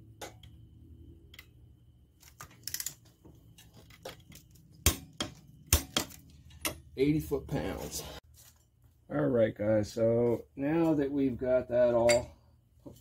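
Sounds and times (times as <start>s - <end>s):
metal parts and tools clinking: 2.2s - 7.0s.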